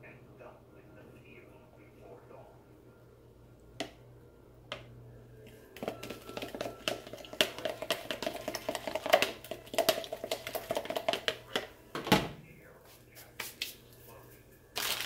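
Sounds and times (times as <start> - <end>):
spoon scraping plastic cup: 5.8 - 11.7.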